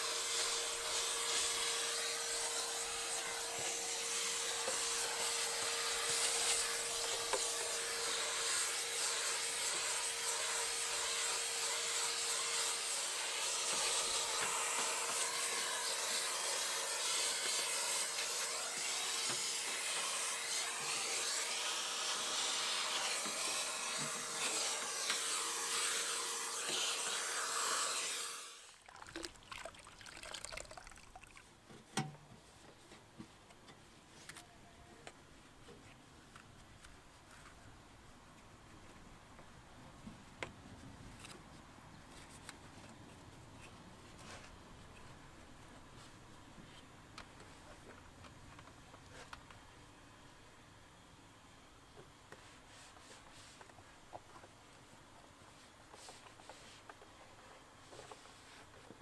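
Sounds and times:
vacuum cleaner running: 0:00.0 - 0:28.7
cloth wiping: 0:52.3 - 0:53.7.

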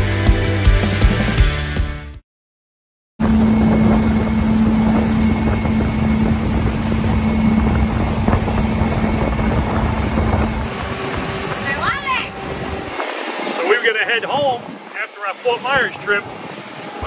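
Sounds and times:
wind noise on microphone: 0:03.2 - 0:15.0
motorboat engine drone: 0:03.2 - 0:17.0.

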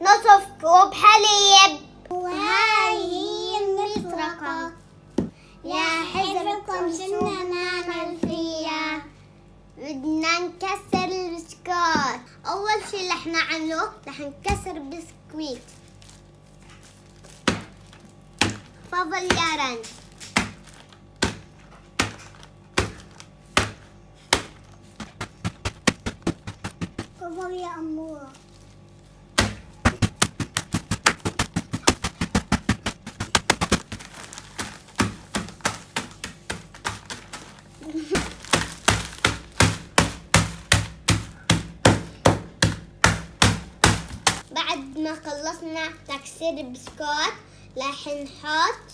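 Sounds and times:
mallet pounding biscuits in bag: 0:17.3 - 0:28.4, 0:29.3 - 0:44.5.

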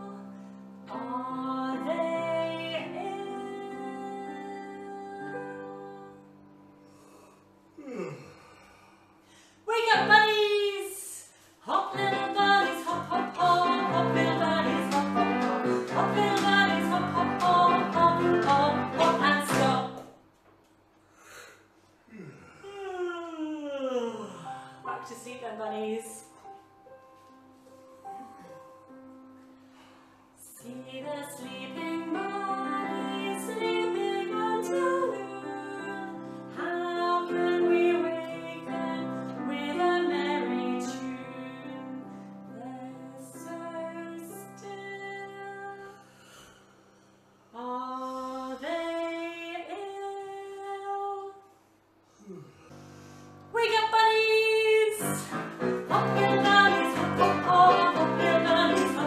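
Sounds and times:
woman singing: 0:00.0 - 0:06.4, 0:09.7 - 0:20.0, 0:24.9 - 0:26.3, 0:30.4 - 0:46.0, 0:47.6 - 0:51.4, 0:53.5 - 0:59.0.

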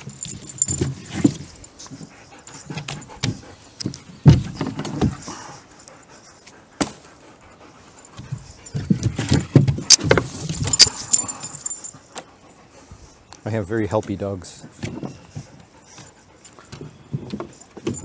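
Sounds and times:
light metallic jingling: 0:00.0 - 0:03.9, 0:07.4 - 0:12.6, 0:15.2 - 0:18.0.

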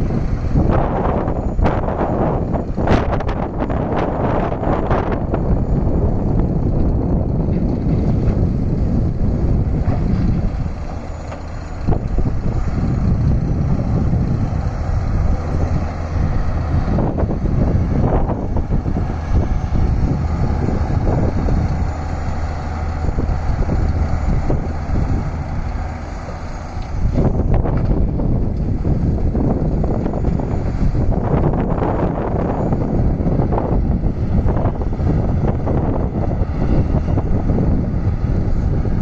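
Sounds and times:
excavator diesel engine running: 0:00.0 - 0:39.0.

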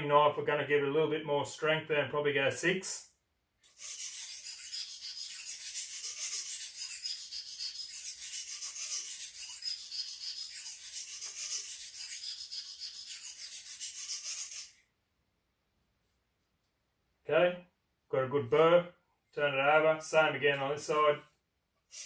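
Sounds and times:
sharpening stone scraping knife: 0:03.6 - 0:14.8.

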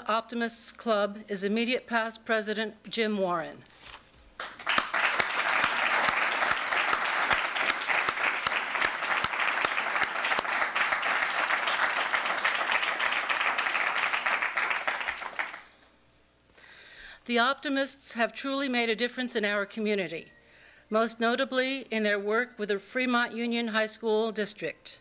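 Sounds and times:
audience applauding: 0:04.4 - 0:15.9.

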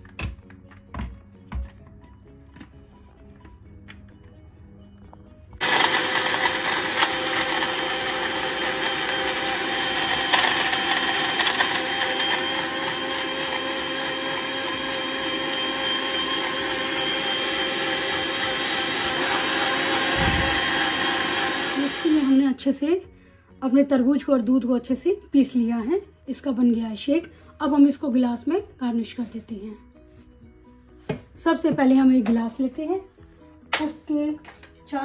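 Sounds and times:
mixer grinder motor whine: 0:05.6 - 0:22.5.

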